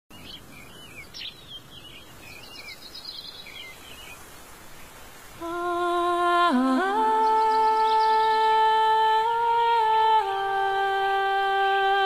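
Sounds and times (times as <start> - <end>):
high bird chirps: 0.1 - 4.2
steady hiss: 0.5 - 12.0
held sung or hummed note: 5.4 - 12.0.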